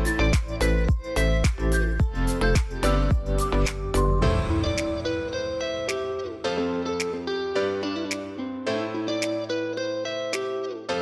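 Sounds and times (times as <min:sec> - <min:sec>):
plucked guitar melody: 0:00.0 - 0:11.0
steady beat: 0:00.3 - 0:06.3.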